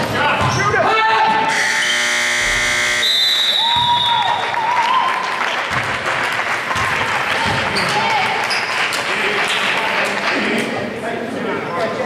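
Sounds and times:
buzzer-like tone: 0:01.5 - 0:03.6
crowd clapping and cheering: 0:03.4 - 0:10.8.

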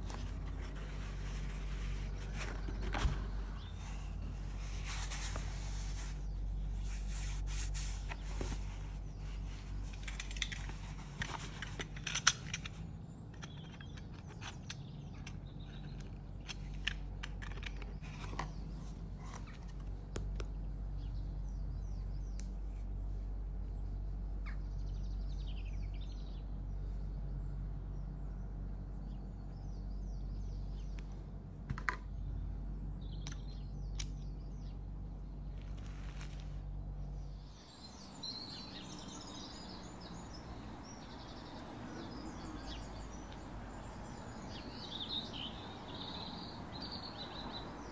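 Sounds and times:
low hum: 0:00.0 - 0:47.9
faint bird chirps: 0:18.0 - 0:31.3, 0:36.7 - 0:47.9.

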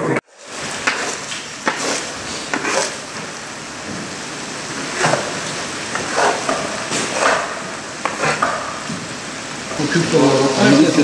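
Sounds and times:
food sizzling in a cauldron: 0:00.3 - 0:11.0
louder strokes: 0:00.3 - 0:11.0.

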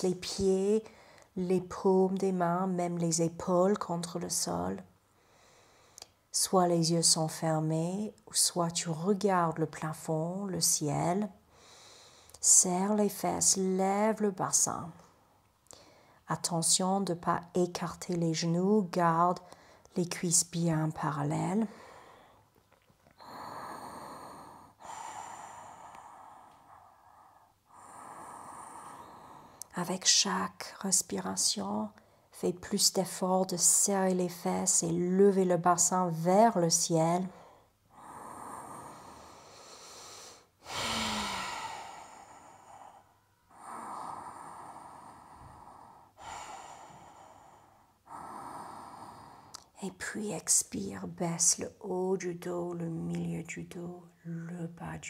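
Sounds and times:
woman breathing: 0:00.8 - 0:01.4, 0:05.0 - 0:06.3, 0:11.4 - 0:12.4, 0:15.6 - 0:16.2, 0:19.4 - 0:19.9, 0:21.6 - 0:29.8, 0:37.2 - 0:49.8.

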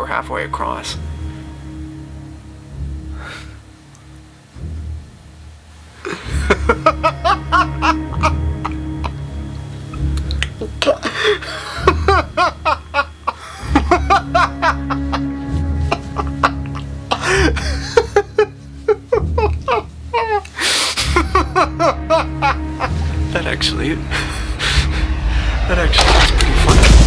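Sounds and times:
background music with low drone: 0:00.0 - 0:27.0
man laughing maniacally: 0:06.1 - 0:09.3, 0:10.5 - 0:23.3.

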